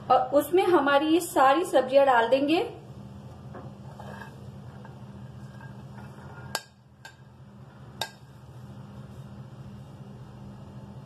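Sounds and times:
steady low hum: 0.0s - 11.0s
light scraping on plate: 3.6s - 6.7s.

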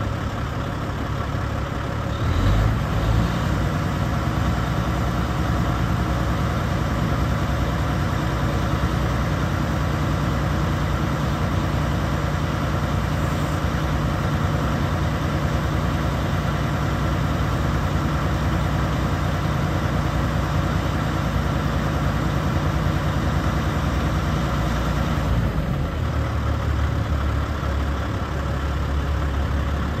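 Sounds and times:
diesel truck engine running: 0.0s - 30.0s.

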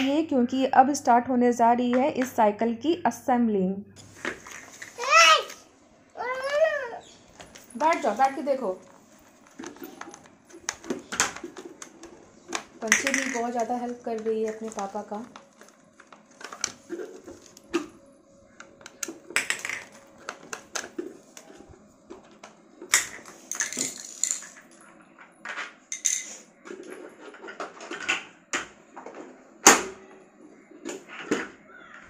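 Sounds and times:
plastic parts clattering on tiles: 4.1s - 5.0s, 7.4s - 17.9s, 18.6s - 29.9s.

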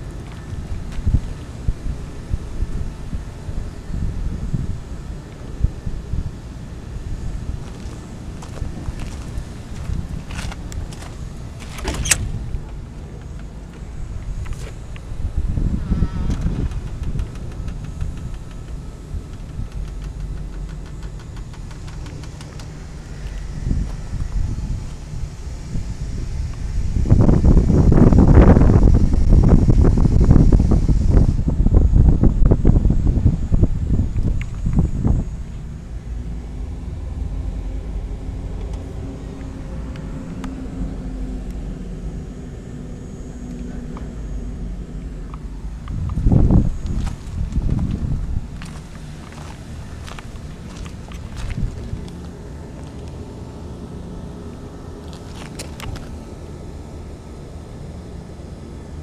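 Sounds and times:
diesel generator droning: 0.0s - 59.0s
faint steady hum: 0.0s - 59.0s.

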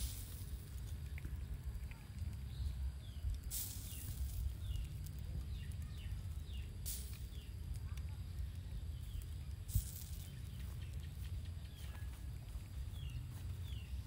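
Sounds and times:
small birds chirping: 0.0s - 14.0s
steady low rumble: 0.0s - 14.0s.

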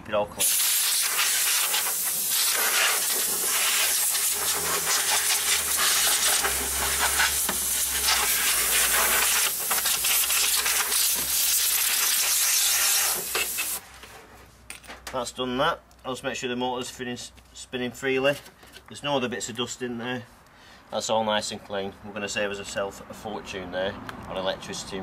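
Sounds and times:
compressed air hissing: 0.4s - 13.8s.

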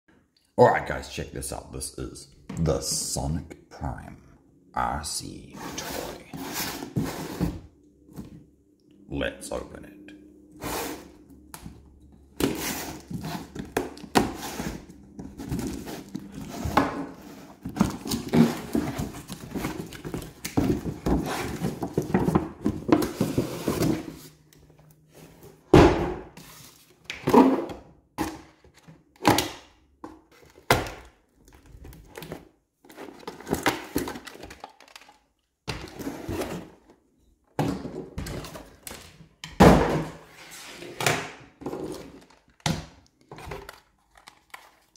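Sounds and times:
cardboard rustling and scraping: 5.5s - 8.4s, 10.6s - 11.4s, 12.3s - 24.5s, 26.3s - 27.6s, 31.5s - 35.0s, 35.7s - 37.1s, 39.8s - 42.5s.

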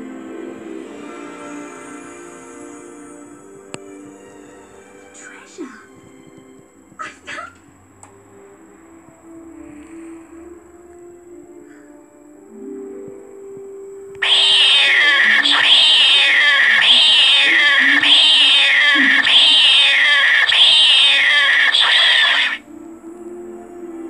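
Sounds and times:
faint background music: 0.0s - 21.4s, 22.6s - 24.0s
cat meowing: 14.2s - 22.6s.

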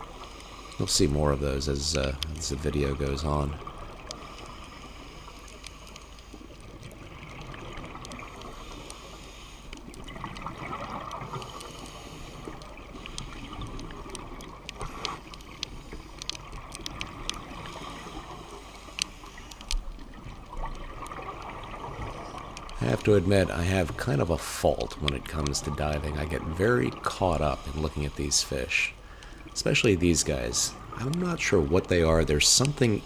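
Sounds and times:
underwater bubbling of exhaled air: 0.0s - 33.0s.

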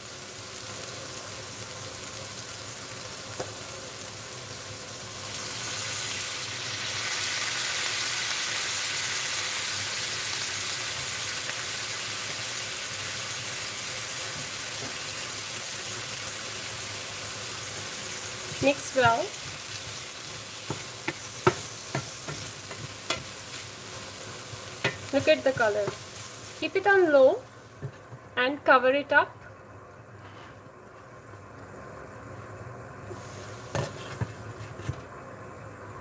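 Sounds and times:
vegetables sizzling in frying pan: 0.0s - 29.3s, 31.1s - 35.1s
steam hiss: 33.1s - 34.5s.

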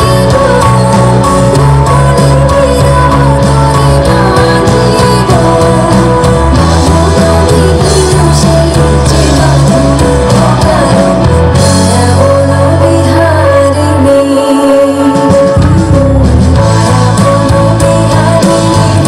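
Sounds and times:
song with singing and bass: 0.0s - 19.0s.

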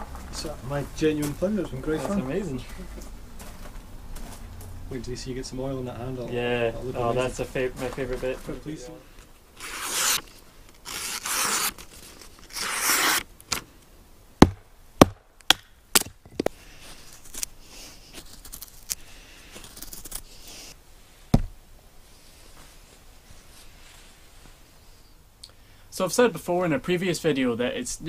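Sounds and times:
blade scraping wooden stick: 9.6s - 13.3s
knife slicing paper: 9.6s - 13.3s, 18.1s - 19.0s, 19.6s - 20.7s
sharp knocks: 14.4s - 16.1s, 21.3s - 21.6s.

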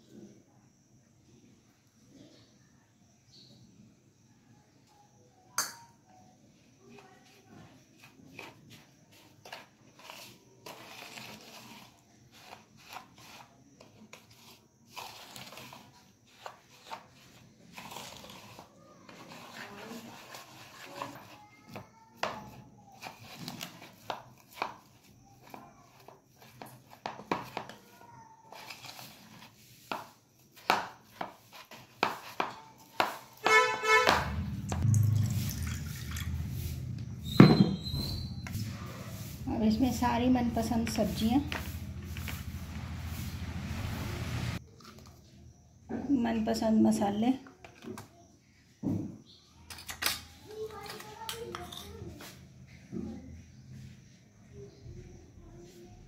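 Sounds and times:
spoon scraping and tapping bowl: 5.6s - 6.0s
low rumble: 34.3s - 44.6s.

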